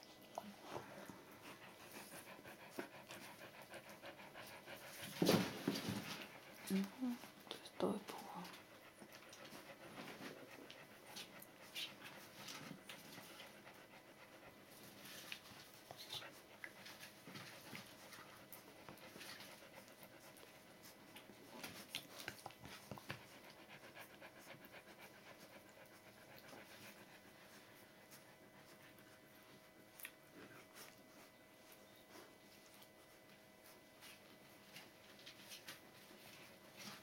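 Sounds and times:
dog panting faintly: 0.0 - 37.0
puppies suckling clicks: 17.7 - 23.6.

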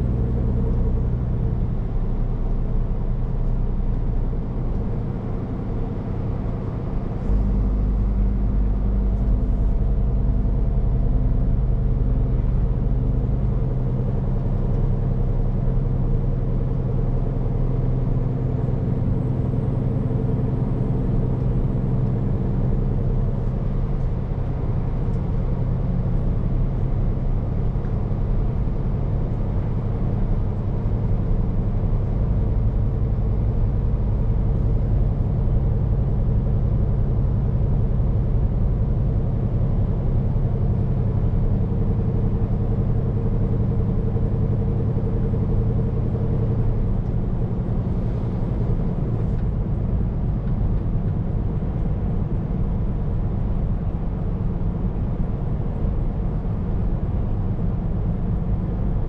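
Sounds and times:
low road rumble: 0.0 - 59.0
truck diesel engine running: 15.7 - 58.5.

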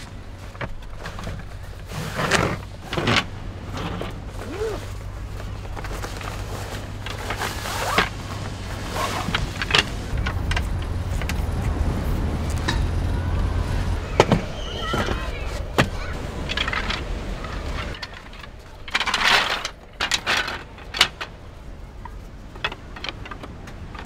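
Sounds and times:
wooden slats clacking and knocking: 0.0 - 13.1, 14.0 - 24.0
fabric bag rustling: 0.4 - 10.2.

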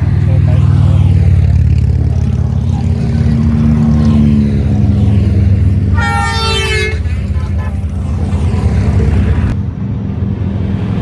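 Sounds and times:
motorcycles riding past: 0.0 - 9.6
horn toot: 5.9 - 7.4.

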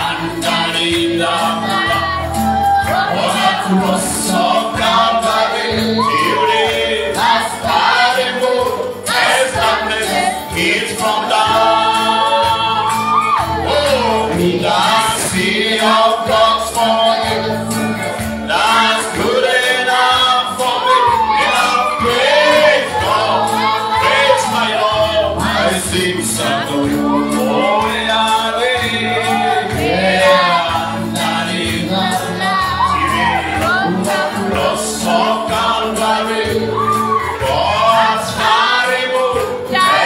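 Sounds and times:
gospel voices singing: 0.0 - 40.0
instrumental accompaniment: 0.0 - 40.0.

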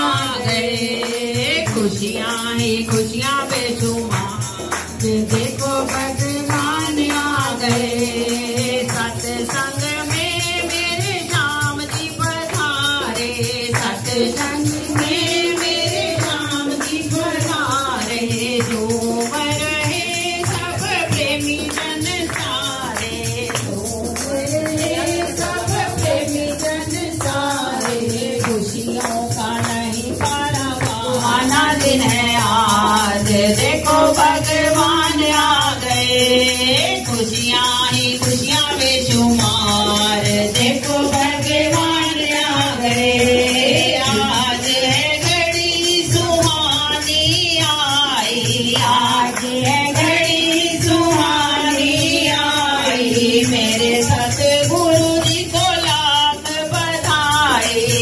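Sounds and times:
people clapping: 0.0 - 32.0, 46.1 - 54.5
group singing devotional song: 0.0 - 58.0
jingling percussion: 0.0 - 58.0.

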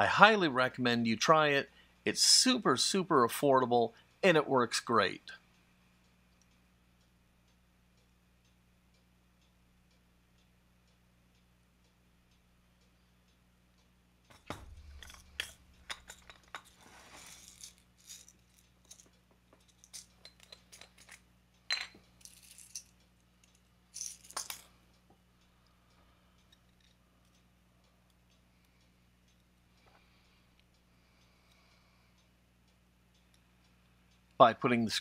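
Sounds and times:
small metal parts clicking: 14.3 - 24.8, 26.4 - 27.4.

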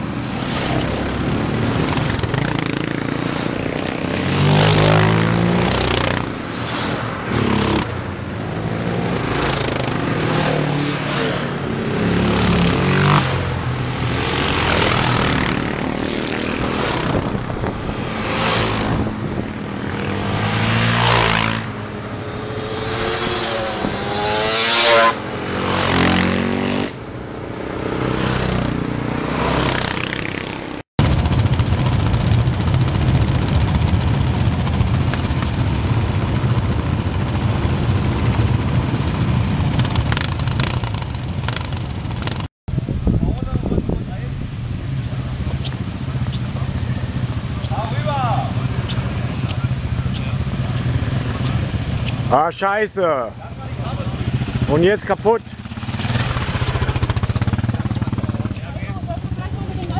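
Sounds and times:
quad bikes revving past: 0.0 - 36.0, 45.0 - 59.9
quad engines running steadily: 0.0 - 59.9.

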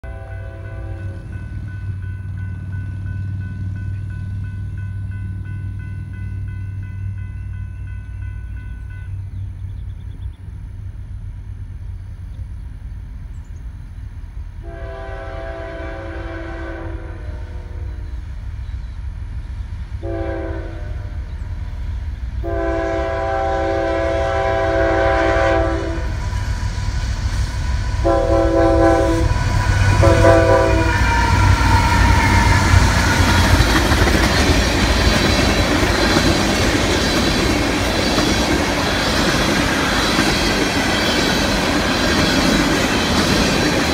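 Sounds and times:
locomotive air horn blasts: 0.0 - 1.3, 14.6 - 18.0, 20.0 - 21.2, 22.4 - 26.2, 28.0 - 33.4
low train rumble: 0.0 - 43.9
steel wheels on rail: 0.1 - 43.9
locomotive engines: 26.0 - 43.9.

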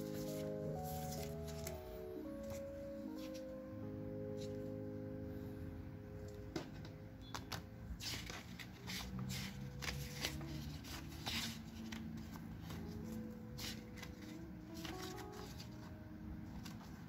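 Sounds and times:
paper pages flipping: 0.0 - 3.5, 7.4 - 15.9, 16.5 - 17.0.

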